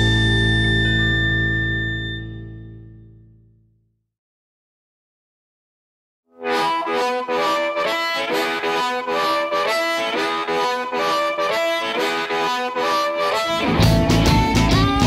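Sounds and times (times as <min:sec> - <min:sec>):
blues harmonica chords: 0:00.0 - 0:02.9, 0:06.4 - 0:15.0.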